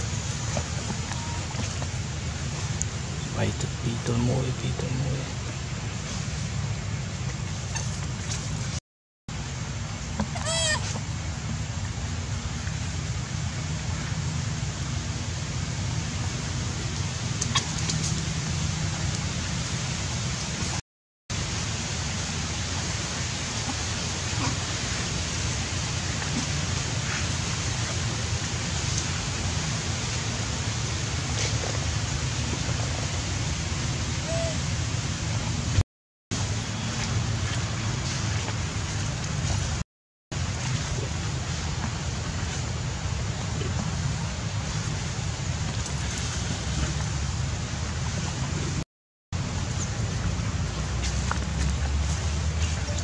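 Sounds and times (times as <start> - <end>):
high-pitched squeaky call: 10.4 - 10.8.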